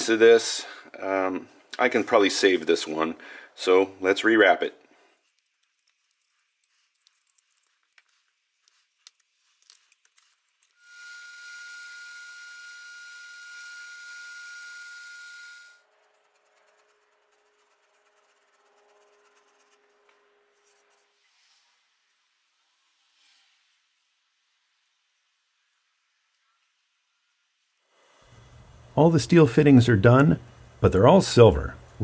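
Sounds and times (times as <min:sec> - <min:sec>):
belt grinder whining: 0:10.8 - 0:15.8.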